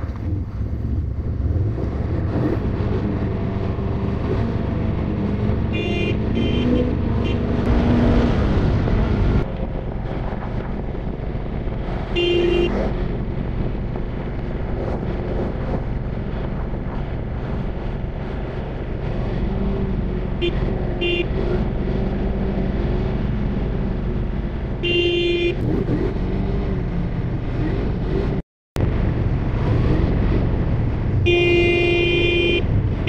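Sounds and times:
horn beeping: 5.7 - 7.8, 12.2 - 12.7, 24.8 - 25.6, 31.2 - 32.7.

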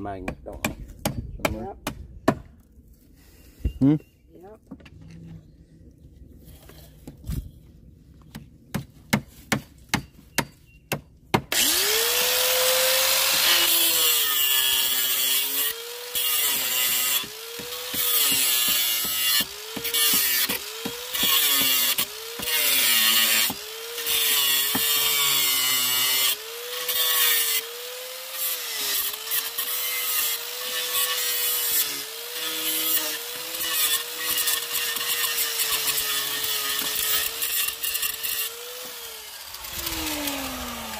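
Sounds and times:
angle grinder cutting metal: 11.5 - 40.9.

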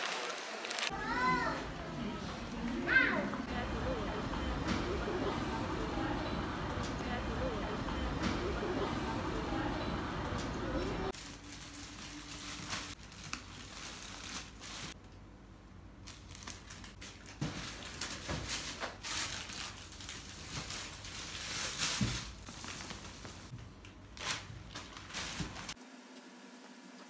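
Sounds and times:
plastic bags crinkling: 11.1 - 15.0, 16.0 - 23.5, 24.1 - 25.8.

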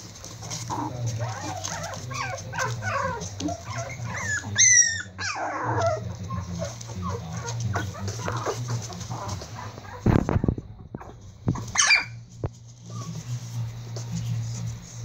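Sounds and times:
puppies whimpering and squeaking: 0.0 - 14.8
puppy yelp and whine: 1.2 - 6.4, 11.0 - 12.2.

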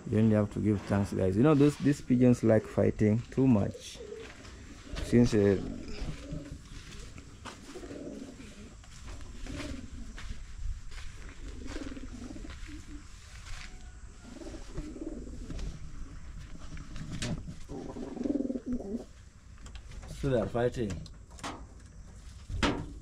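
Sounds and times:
pigeons cooing: 0.0 - 19.2.

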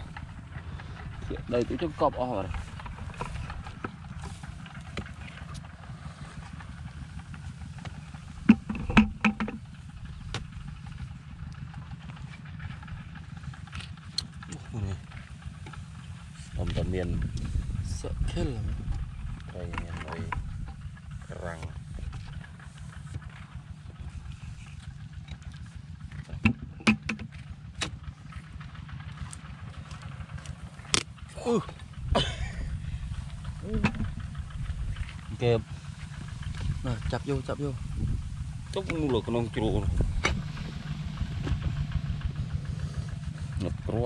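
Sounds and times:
low rumble: 0.0 - 44.0
wind rumble on microphone: 16.4 - 22.6, 31.9 - 44.0.

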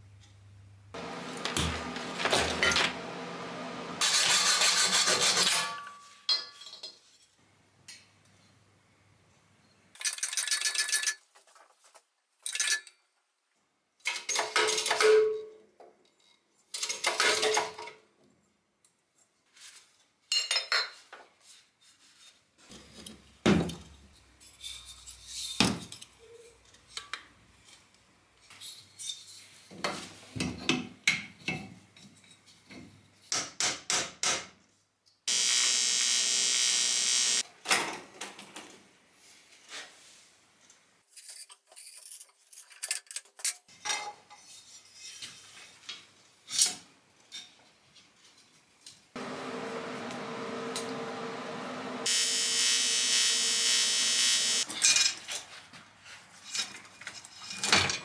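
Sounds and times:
steady hum: 1.0 - 4.0, 49.2 - 54.6
power tool hissing: 1.0 - 5.0, 35.3 - 37.4, 49.2 - 54.6.

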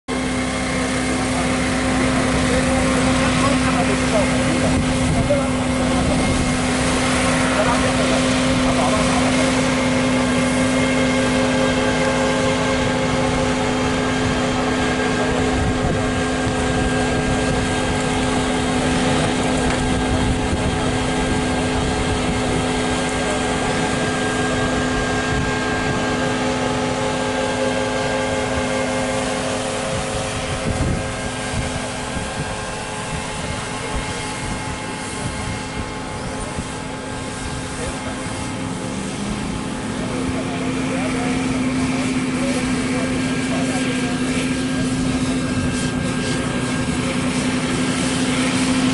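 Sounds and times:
sprayer blower engine droning: 0.0 - 48.9
vehicle driving over rough ground: 0.1 - 48.9.

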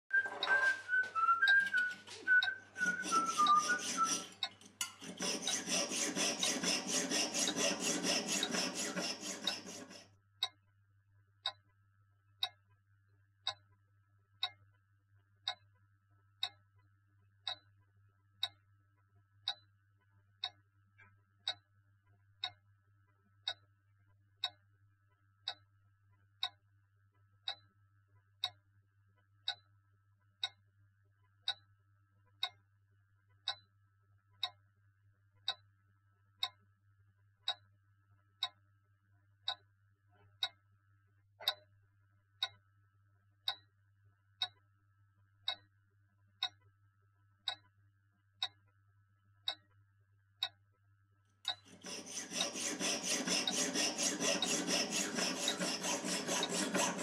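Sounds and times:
clock ticking: 1.5 - 10.6, 17.4 - 17.7, 42.4 - 42.6, 51.5 - 57.0
saw cutting metal: 1.6 - 10.0, 51.5 - 57.0.

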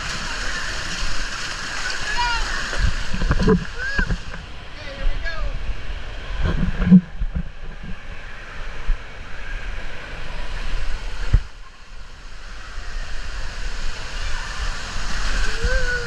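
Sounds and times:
water rushing down slide: 0.0 - 16.0
wind noise: 2.0 - 11.8.

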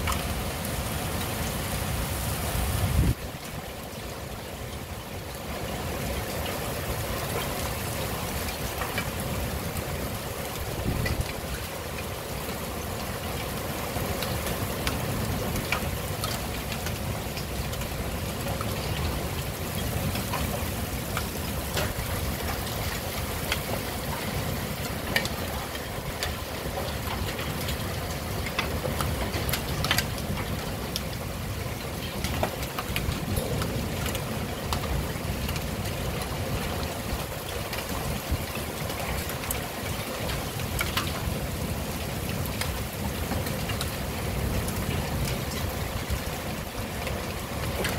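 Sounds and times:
wind rumble: 0.0 - 3.6, 8.2 - 11.8
heavy rain: 0.0 - 47.9
raindrops tapping hard surfaces: 0.0 - 47.9.

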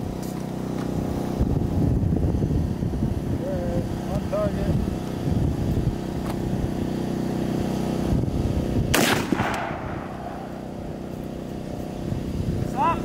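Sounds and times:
rifle shot with echo: 8.9 - 10.7.

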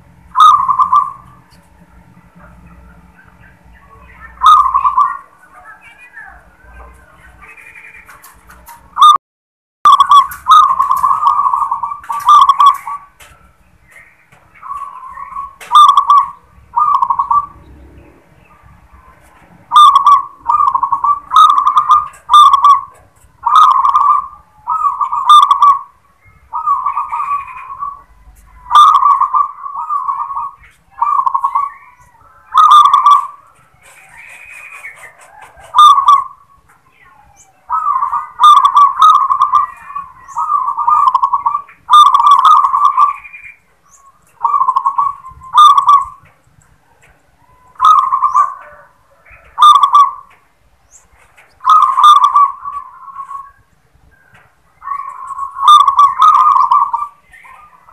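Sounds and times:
dove cooing: 0.0 - 9.1, 9.9 - 57.9.

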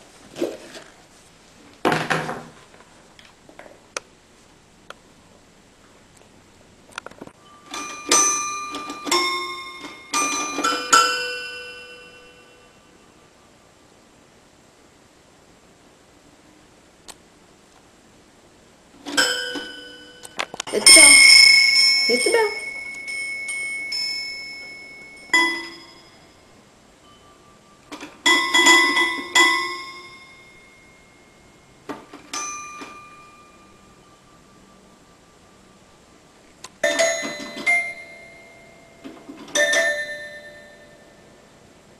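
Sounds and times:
brass bell ringing: 7.4 - 13.0, 19.1 - 34.9
toy piano notes: 7.6 - 12.6, 28.2 - 30.5, 36.8 - 38.6, 39.5 - 41.0.

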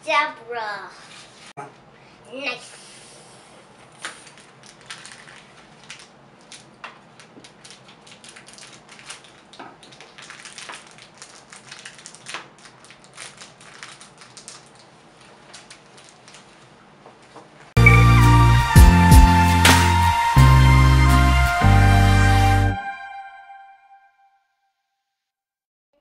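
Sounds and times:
foil packaging crinkling: 3.9 - 17.6.

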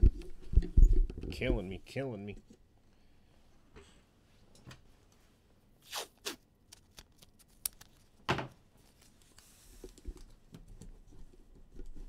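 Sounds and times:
rustles and scrapes of handling: 7.2 - 12.0.

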